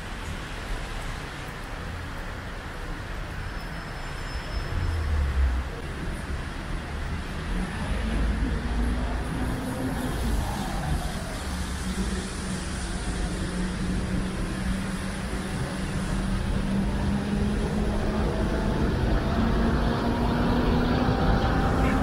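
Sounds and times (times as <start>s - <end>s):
tyres hissing on wet street: 0.0s - 22.0s
bus engine humming: 7.7s - 22.0s.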